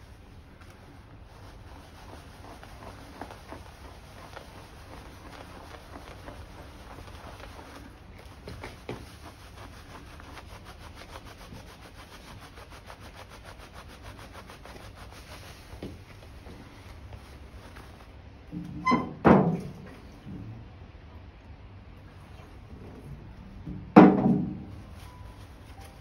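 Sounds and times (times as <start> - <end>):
cloth rag rubbing on steel: 0.0 - 18.1, 24.8 - 26.0
low steady hum: 0.0 - 26.0.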